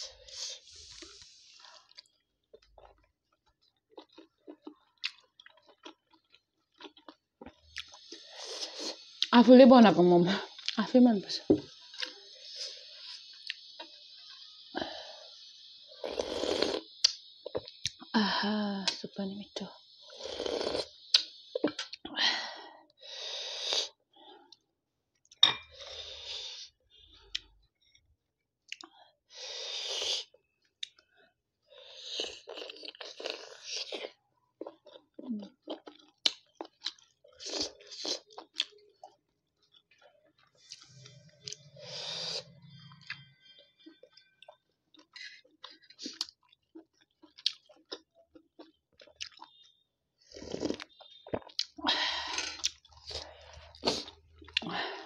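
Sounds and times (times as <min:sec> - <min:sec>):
close chewing mouth noise: 0:01.8 - 0:09.4, 0:32.2 - 0:41.8, 0:43.8 - 0:51.8, 0:52.5 - 0:54.7.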